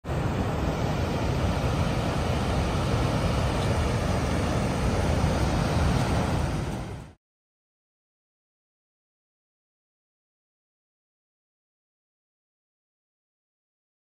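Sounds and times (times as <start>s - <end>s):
water rushing down a spillway: 0.0s - 7.2s.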